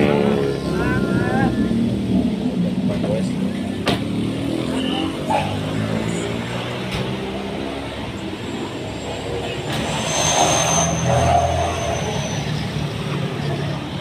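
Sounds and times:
car passing: 3.5s - 14.0s
thin high whine: 9.7s - 12.8s.

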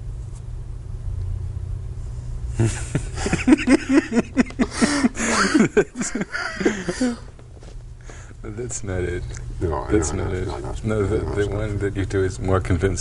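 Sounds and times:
low steady hum: 0.0s - 13.0s
man's wordless vocal bursts: 9.6s - 11.7s.

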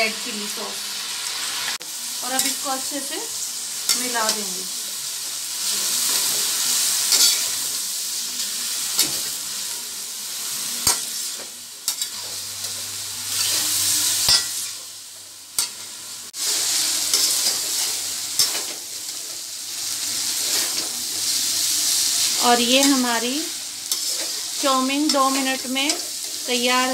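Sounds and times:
noodles sizzling in a pan: 0.0s - 26.9s
metal spatula scraping a pan: 5.9s - 7.7s, 10.8s - 14.8s, 15.6s - 19.3s, 20.2s - 21.4s, 23.8s - 26.4s.

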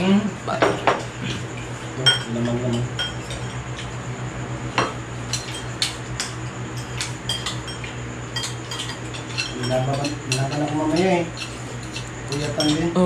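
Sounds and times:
spoons clinking on bowls: 2.0s - 3.9s, 4.8s - 13.0s.

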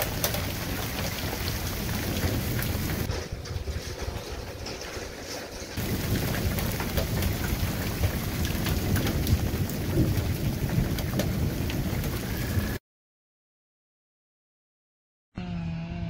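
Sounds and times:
heavy rain pouring: 0.0s - 3.1s, 5.8s - 12.8s
low rumble of thunder: 0.0s - 12.8s.

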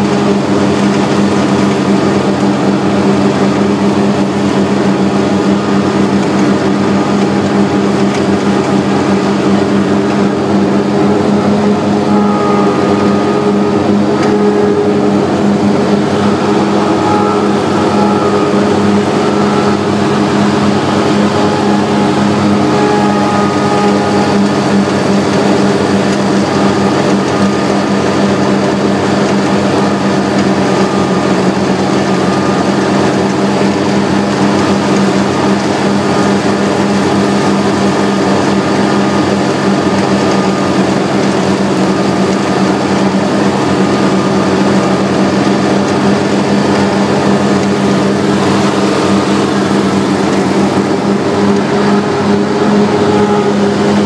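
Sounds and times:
mower engine droning: 0.0s - 54.0s.

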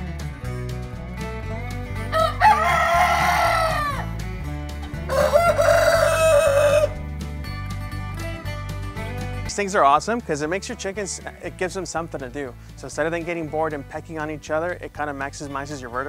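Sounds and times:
country-style music: 0.0s - 16.0s
rooster crowing: 2.1s - 4.1s, 5.1s - 7.0s.

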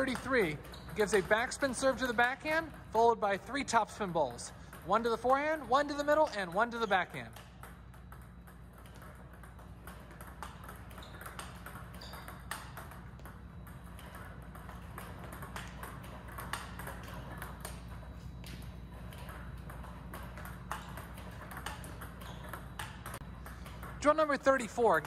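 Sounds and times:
table tennis ball clicks: 4.7s - 25.0s.

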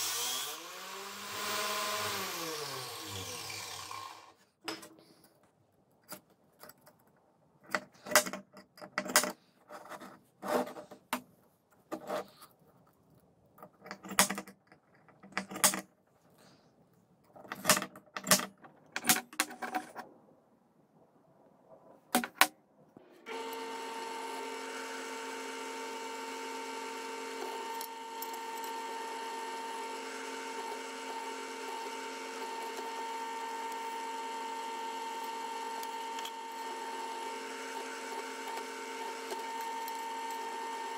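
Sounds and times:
drill press whining: 0.0s - 4.4s, 23.2s - 40.9s.

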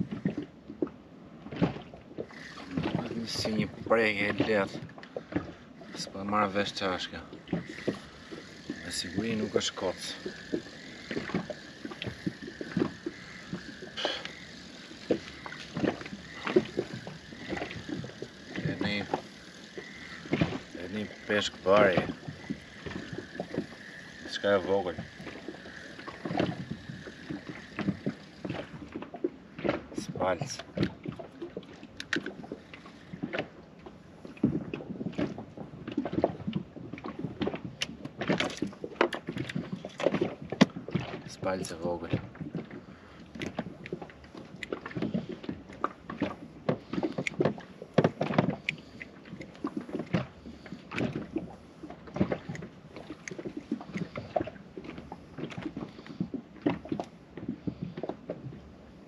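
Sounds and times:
fishing tackle clicks and rustles: 0.0s - 58.6s
spinning reel being cranked: 2.2s - 4.7s, 5.8s - 29.0s.

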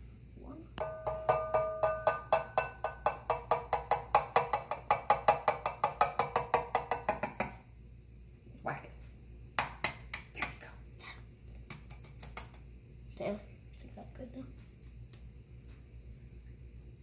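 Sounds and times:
egg tapping on saucepan rim: 0.8s - 7.6s.

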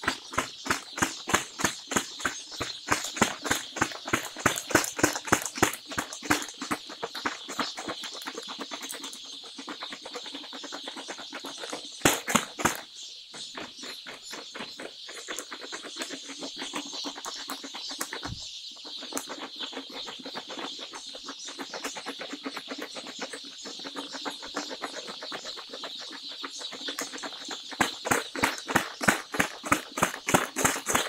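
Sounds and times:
chicks peeping: 0.0s - 31.0s.

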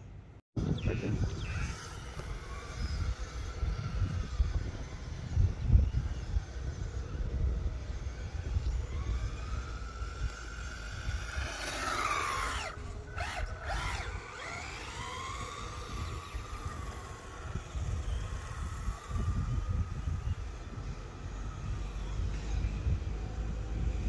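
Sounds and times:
wind rumble on microphone: 0.0s - 24.0s
electric motor whining: 0.9s - 24.0s.

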